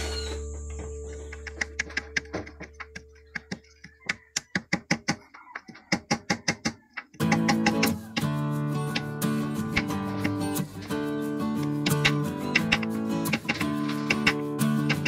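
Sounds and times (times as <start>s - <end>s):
guitar music: 0.0s - 3.5s, 7.2s - 15.0s
background music: 0.0s - 3.6s, 7.2s - 15.0s
hammer tapping metal: 0.5s - 8.3s.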